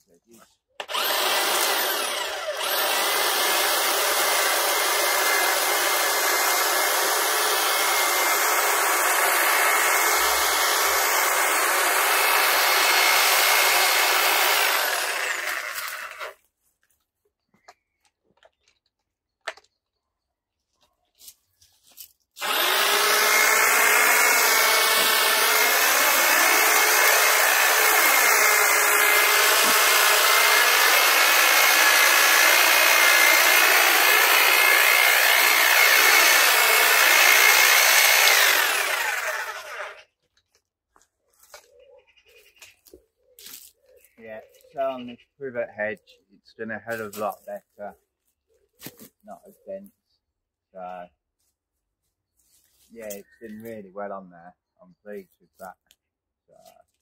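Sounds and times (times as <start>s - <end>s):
hedge trimmer cutting: 0.8s - 16.4s, 22.4s - 40.2s.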